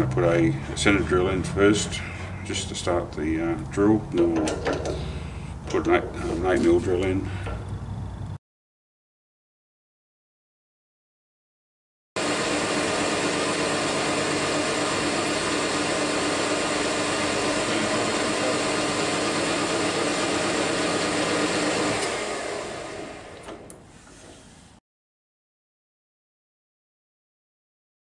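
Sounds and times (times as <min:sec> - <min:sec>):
metal lathe humming: 0:12.2 - 0:23.8.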